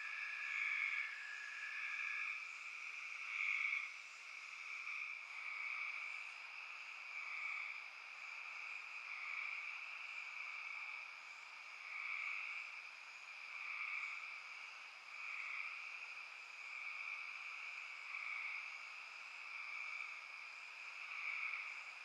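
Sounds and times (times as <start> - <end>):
frogs calling: 0.0 - 6.5
night insects chorus: 0.0 - 22.0.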